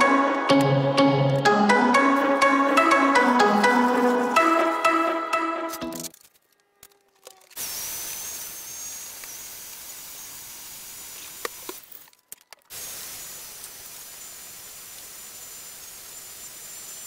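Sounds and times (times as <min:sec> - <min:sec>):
background music: 0:00.0 - 0:06.2.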